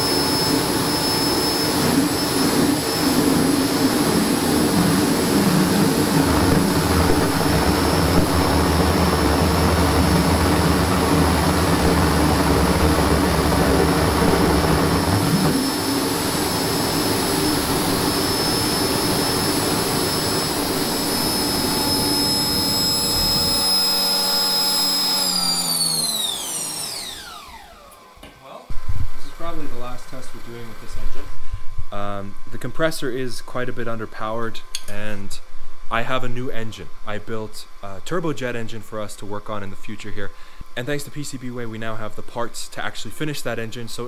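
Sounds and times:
high-pitched compressor whine: 0:00.0 - 0:44.0
combustion rumble: 0:04.2 - 0:18.3.

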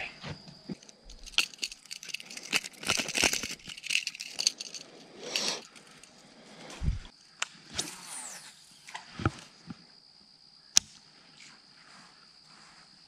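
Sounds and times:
fishing lure hooks rattling: 0:00.8 - 0:06.1
rustle: 0:10.9 - 0:13.0.

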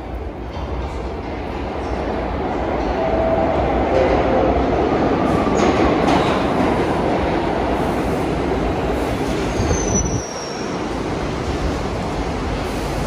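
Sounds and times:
subway train on rails: 0:00.0 - 0:13.0
high wheel squeal: 0:09.5 - 0:10.8.

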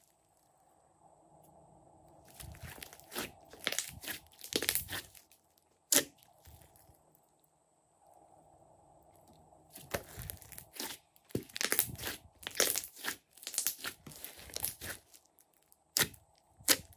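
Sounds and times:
slime squelching: 0:02.2 - 0:06.9, 0:09.7 - 0:16.9.

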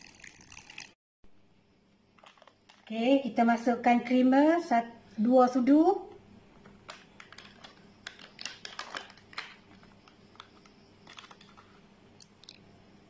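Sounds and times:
plastic pouch crinkling: 0:06.9 - 0:11.8.

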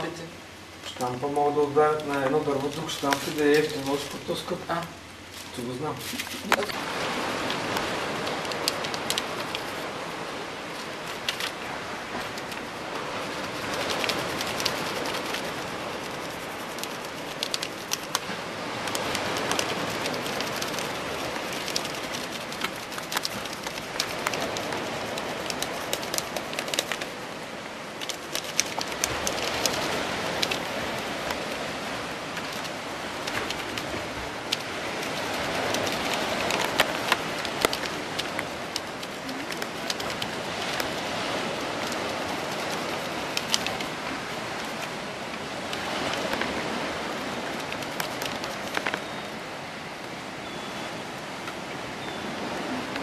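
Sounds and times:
small crackling clicks: 0:01.8 - 0:04.6, 0:07.4 - 0:09.9, 0:10.7 - 0:11.6, 0:12.2 - 0:27.2, 0:28.0 - 0:31.7, 0:32.3 - 0:46.6, 0:47.4 - 0:49.1.

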